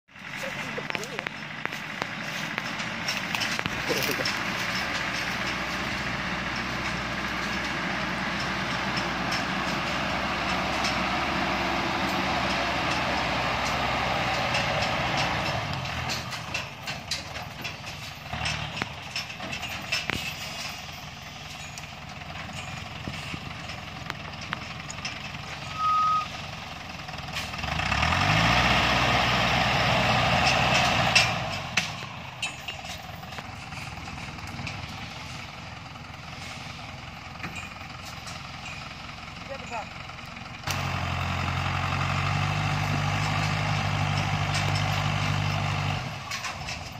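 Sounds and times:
diesel engine pulling hard: 0.0s - 46.9s
stones crunching under tyres: 0.2s - 10.9s
short electronic beep: 25.7s - 26.3s.

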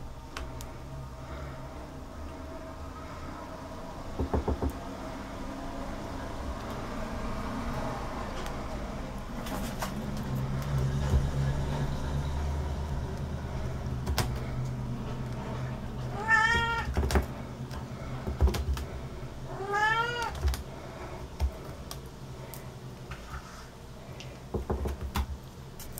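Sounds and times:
kitten meowing: 16.1s - 16.9s, 19.5s - 20.4s.

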